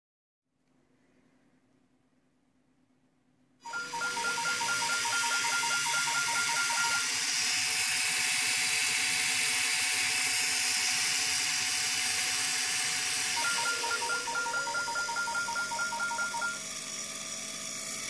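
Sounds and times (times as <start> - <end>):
rapid two-pitch beeping: 3.7 - 7.1, 13.4 - 16.7.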